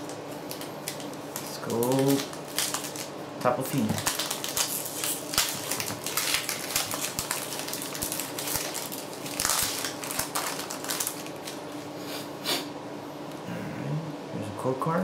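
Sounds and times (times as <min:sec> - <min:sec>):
foil wrapper crinkling: 0:00.0 - 0:11.8.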